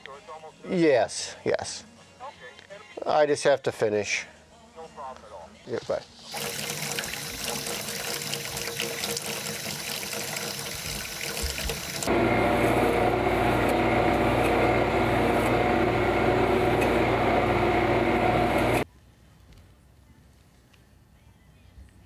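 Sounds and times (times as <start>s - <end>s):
water running from a tap: 6.3s - 12.1s
electric fleshing machine motor humming: 6.4s - 18.8s.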